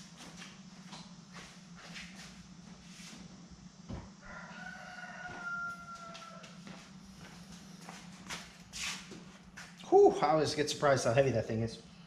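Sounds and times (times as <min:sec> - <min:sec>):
steady low hum: 0:00.0 - 0:12.0
rooster crowing: 0:04.2 - 0:06.8.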